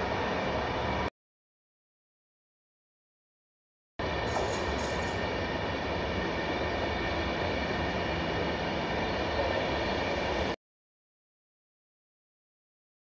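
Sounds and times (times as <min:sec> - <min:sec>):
train wheels rolling on rails: 0:04.0 - 0:10.5.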